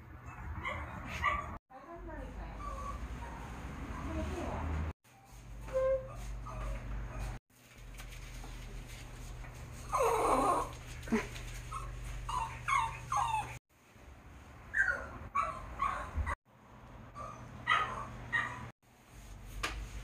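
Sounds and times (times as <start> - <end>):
small dog whining and yipping: 2.6 - 3.0, 5.7 - 7.4, 11.7 - 13.6, 14.7 - 16.4, 17.2 - 18.7.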